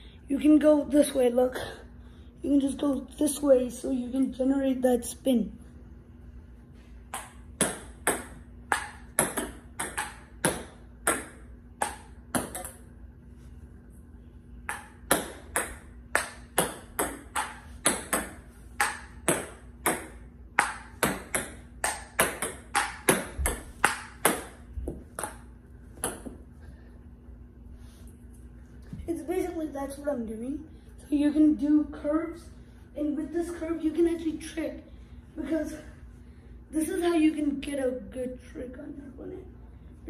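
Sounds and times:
ball bouncing on table: 7.1 - 12.8, 14.7 - 26.4
table tennis ball on paddle: 7.1 - 12.9, 14.6 - 26.4.

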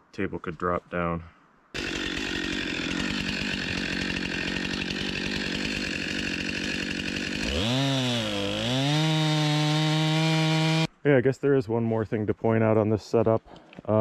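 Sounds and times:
chainsaw idling and revving: 1.8 - 10.9.

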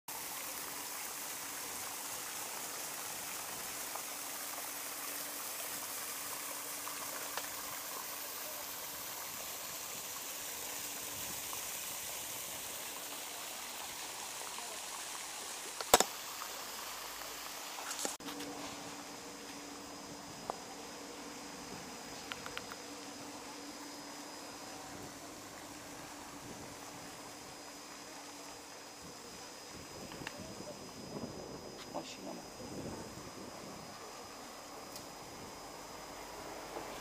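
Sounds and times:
fountain spray splashing on water: 0.1 - 18.3.

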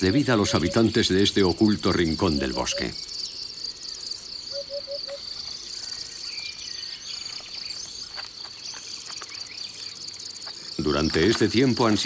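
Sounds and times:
birdsong: 0.0 - 12.0
insects chirring: 0.0 - 12.0.

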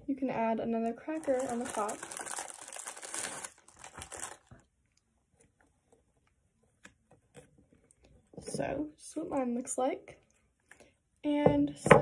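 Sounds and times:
snack packaging crinkling: 1.1 - 4.7.

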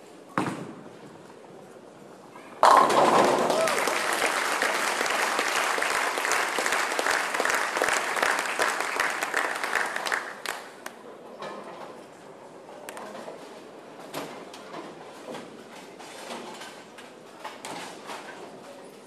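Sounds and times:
crowd applauding: 3.2 - 10.9
scattered claps: 3.2 - 11.0.

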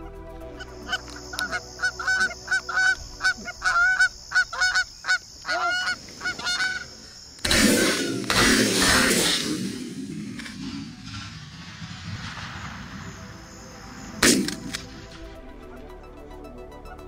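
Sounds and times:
geese honking: 0.0 - 9.1.

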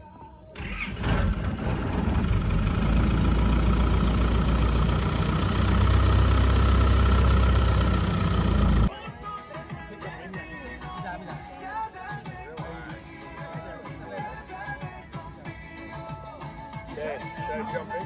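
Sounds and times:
boat engine deep rumble: 1.0 - 8.9.

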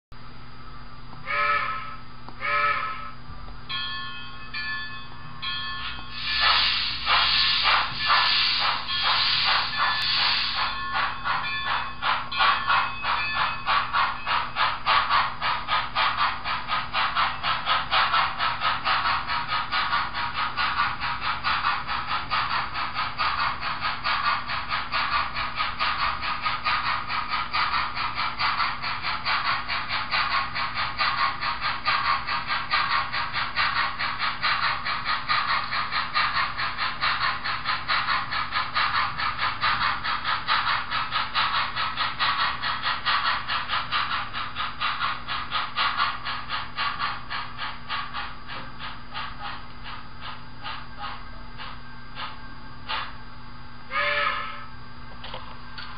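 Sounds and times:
model train wheels rattling: 6.2 - 53.1.

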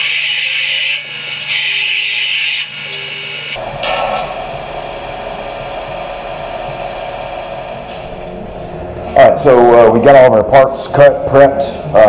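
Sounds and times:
sander motor hum: 2.8 - 9.0.

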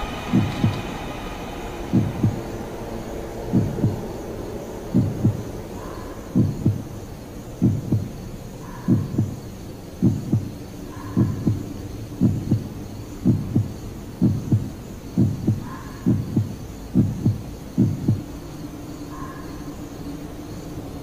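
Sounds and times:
heartbeat thumps: 0.0 - 1.0, 1.8 - 2.6, 3.4 - 4.2, 4.9 - 5.6, 6.3 - 7.0, 7.6 - 18.3
low steady hum: 0.0 - 21.0.

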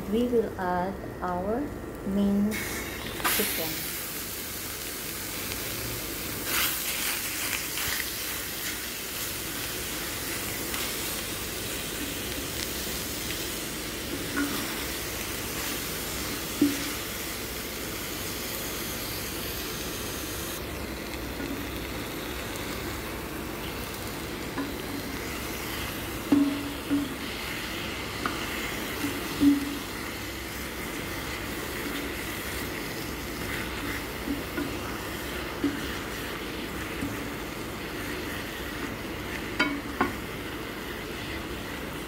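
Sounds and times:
chicken sizzling in a pan: 2.5 - 42.0
spatula scraping and knocking pan: 26.2 - 27.5.

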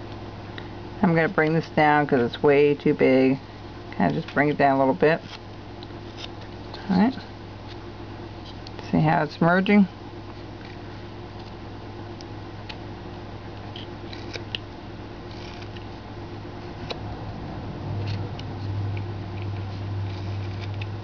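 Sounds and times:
knife carving wood: 6.0 - 6.4, 13.6 - 16.0, 18.0 - 21.0
low hum: 10.6 - 21.0.

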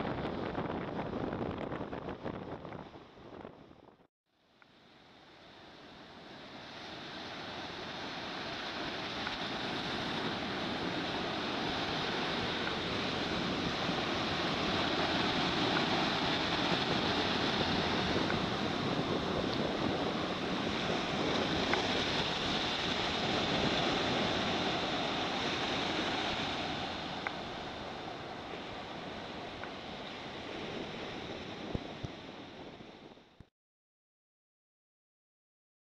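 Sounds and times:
surf breaking on beach: 5.4 - 33.2.

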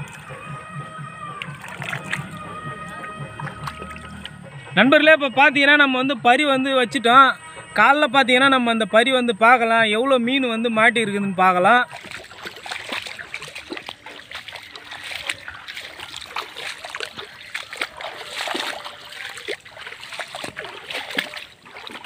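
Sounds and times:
footsteps through wet grass: 0.0 - 4.5, 11.2 - 22.0
water splashes: 0.0 - 4.8, 9.5 - 22.0
trickle of flowing water: 11.8 - 22.0.

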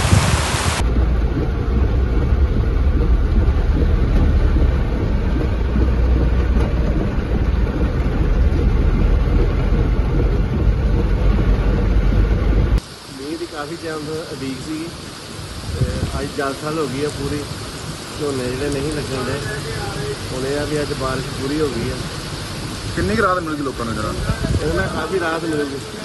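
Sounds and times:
rain beating on car roof: 0.0 - 26.0
car cabin rumble: 0.8 - 12.8.

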